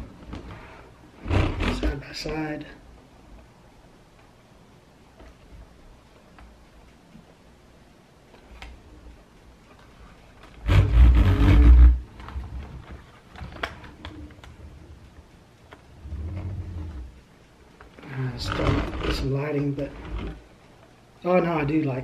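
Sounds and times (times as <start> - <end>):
plastic wheels rumbling on table: 0.0 - 2.0, 10.6 - 14.6, 18.0 - 20.5.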